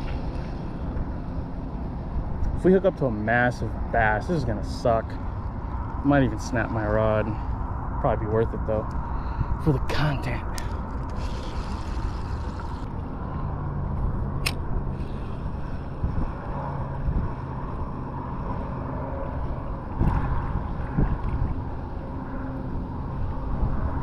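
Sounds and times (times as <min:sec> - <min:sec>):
wind rumbling on microphone: 0:00.0 - 0:24.0
sharp click: 0:14.4 - 0:14.6.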